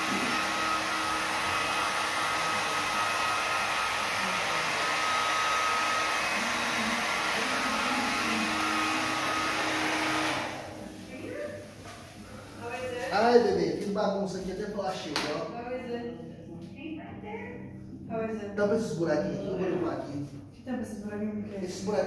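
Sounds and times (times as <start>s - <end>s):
hair dryer running: 0.0s - 13.4s.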